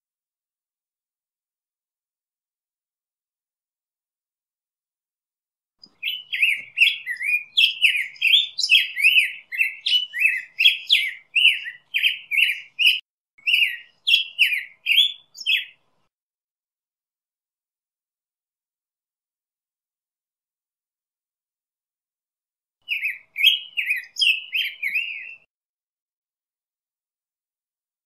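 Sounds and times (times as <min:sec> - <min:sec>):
bird singing warbled song: 0:05.8 - 0:16.1, 0:22.8 - 0:25.5.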